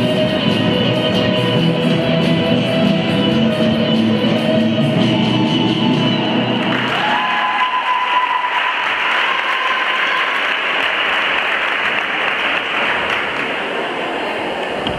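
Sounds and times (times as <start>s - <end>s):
audience applauding: 6.6s - 14.2s.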